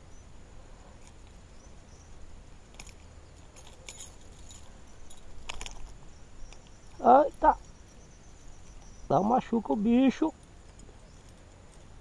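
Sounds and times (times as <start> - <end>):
fishing pliers and hooks clicking: 3.6 - 7.5.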